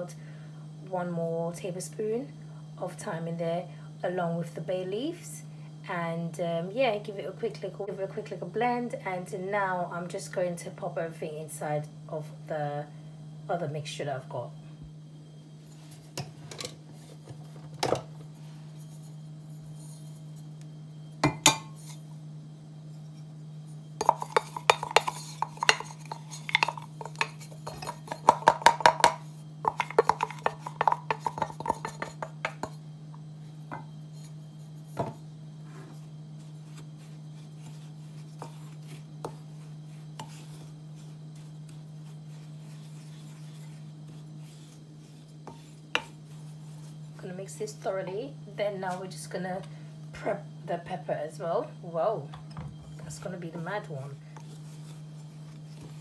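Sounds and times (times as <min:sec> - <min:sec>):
steady low hum: 0:00.0 - 0:56.0
kitchenware clinking: 0:21.2 - 0:21.9
wooden spoon stirring in bowl: 0:24.0 - 0:32.8, 0:33.6 - 0:47.9, 0:53.0 - 0:56.0.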